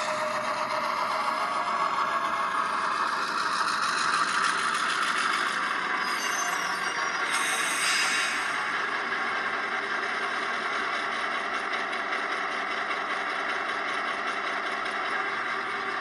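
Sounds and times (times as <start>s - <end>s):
diesel engine idling from small speaker: 0.0s - 4.8s, 8.6s - 16.0s.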